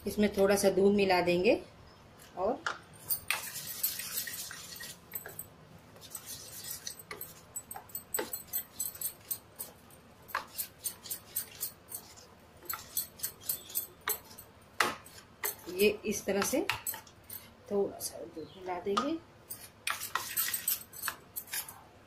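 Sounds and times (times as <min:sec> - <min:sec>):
spoon scraping steel bowl: 0:03.1 - 0:17.5, 0:19.5 - 0:21.8.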